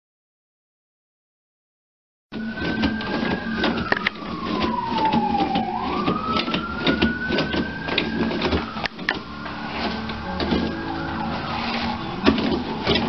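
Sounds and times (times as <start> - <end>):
long sliding tone: 2.4 - 13.0
roll rattling on holder: 2.5 - 10.9, 11.7 - 13.0
toilet paper rustling: 2.5 - 13.0.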